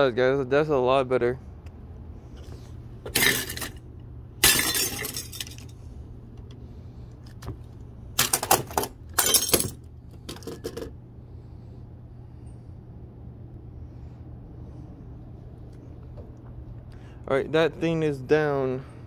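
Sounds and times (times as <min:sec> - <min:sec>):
glass shattering: 0:04.4 - 0:05.7.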